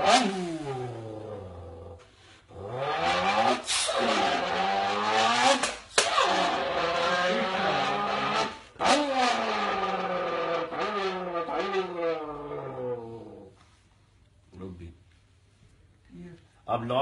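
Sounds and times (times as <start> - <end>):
man imitating car engine revs: 0.0 - 10.0.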